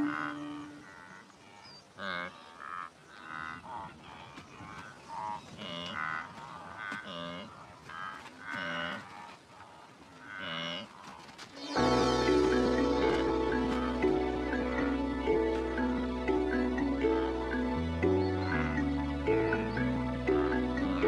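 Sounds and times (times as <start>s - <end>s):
calf bleating calls: 0.0s - 1.2s, 18.3s - 18.9s.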